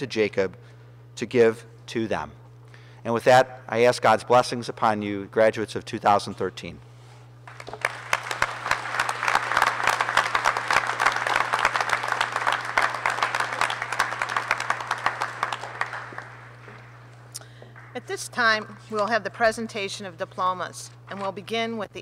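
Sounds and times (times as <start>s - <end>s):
audience applauding: 7.5s - 18.1s.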